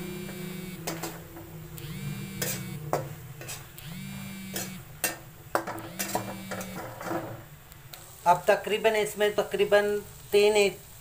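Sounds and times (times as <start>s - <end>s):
low hum: 0.0s - 7.0s
spatula scraping a pan: 2.2s - 3.8s, 4.4s - 7.4s.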